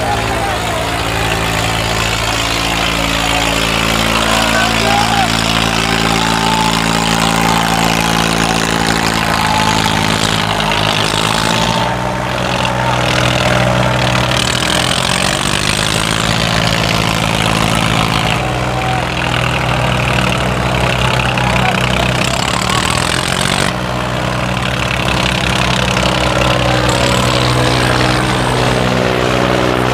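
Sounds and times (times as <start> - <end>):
tractor diesel engine under load: 0.0 - 29.9.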